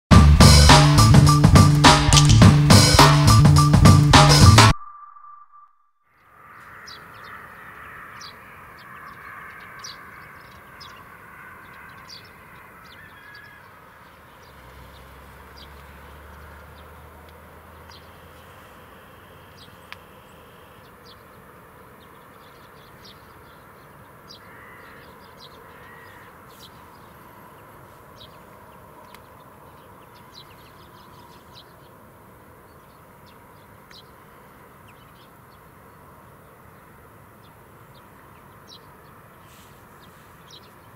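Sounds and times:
bird calls: 0:04.7 - 0:40.9
crow caws: 0:06.1 - 0:14.0, 0:24.3 - 0:26.6.

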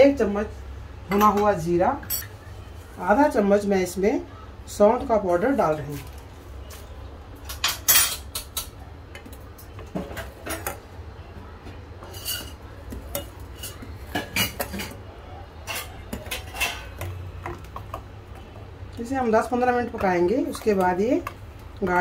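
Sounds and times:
steel ladle scraping a saucepan: 0:12.0 - 0:13.8, 0:15.6 - 0:17.0.

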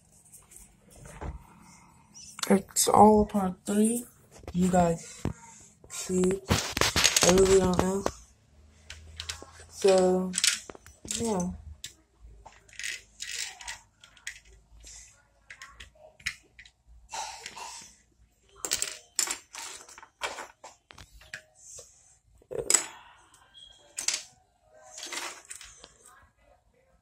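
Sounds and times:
plastic bricks clattering and clicking: 0:06.1 - 0:08.2, 0:08.8 - 0:16.7, 0:18.6 - 0:21.4, 0:24.9 - 0:25.9.

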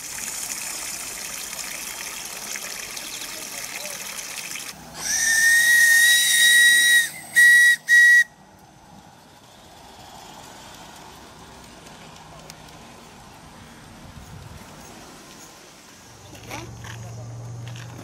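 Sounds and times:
steam hiss: 0:04.9 - 0:08.3
steam locomotive whistle: 0:05.0 - 0:08.4.

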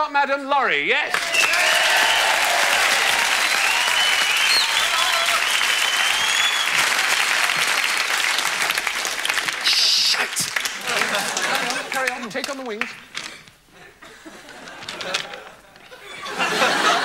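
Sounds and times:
audience cheering: 0:01.1 - 0:12.0
audience applauding: 0:01.1 - 0:13.1.

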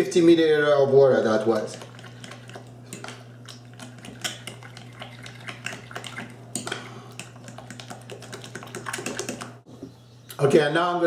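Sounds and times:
utensil stirring batter in glass bowl: 0:01.1 - 0:09.6.

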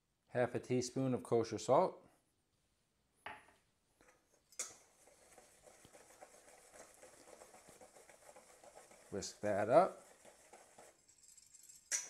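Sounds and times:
whisk scratching metal bowl: 0:04.6 - 0:12.0
bowl clink: 0:11.6 - 0:12.0.

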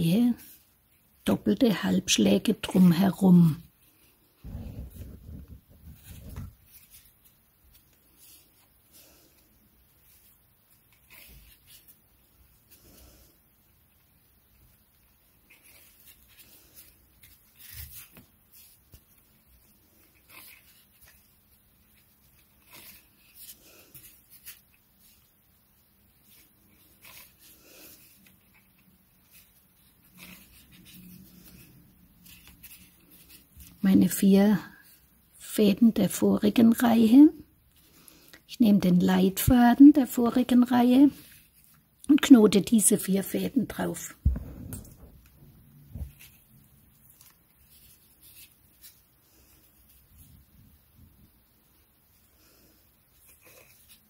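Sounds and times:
cord rustling between fingers: 0:03.4 - 0:34.0, 0:43.8 - 0:54.0
low bump: 0:44.2 - 0:45.7.

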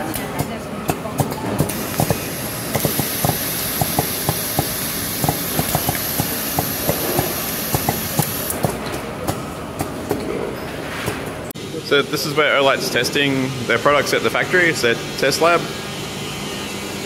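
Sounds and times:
machine parts clicking and clacking: 0:01.2 - 0:09.0
compressed air hissing: 0:01.7 - 0:08.7.

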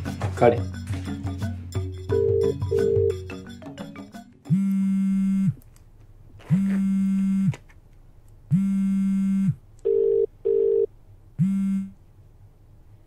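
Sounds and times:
background music: 0:00.0 - 0:04.7
telephone ringback tone: 0:02.1 - 0:03.3, 0:09.9 - 0:10.9.

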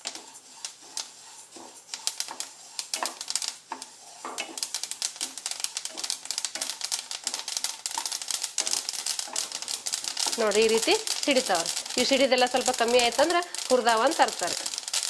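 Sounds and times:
seeds popping in a hot pan: 0:00.0 - 0:15.0
wooden spatula scraping a pan: 0:00.0 - 0:15.0.

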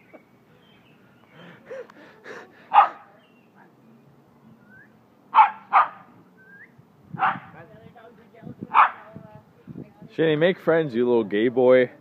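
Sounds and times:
dog barking: 0:02.7 - 0:03.1, 0:05.4 - 0:06.1, 0:07.2 - 0:07.6, 0:08.7 - 0:09.1.

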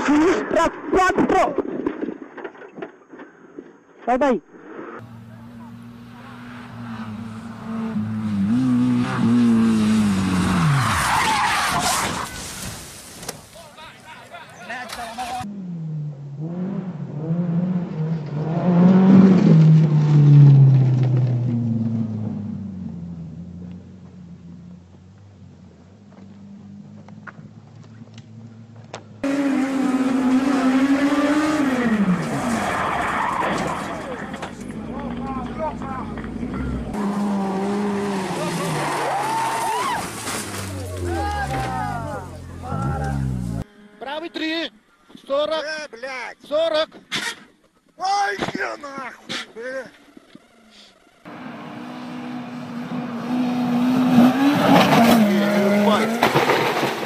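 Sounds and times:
rally car engine revving: 0:05.0 - 0:12.2, 0:15.4 - 0:43.6, 0:51.2 - 0:57.0
tyres skidding: 0:05.0 - 0:43.7, 0:46.4 - 0:57.0
sharp crack: 0:54.7 - 0:57.0.

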